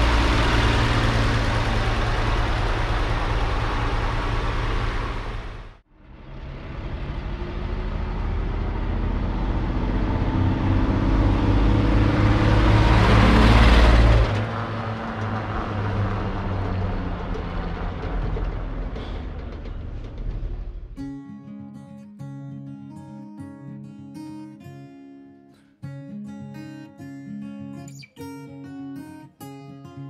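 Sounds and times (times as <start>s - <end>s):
truck driving past: 0.0s - 21.0s
truck engine running: 0.0s - 21.0s.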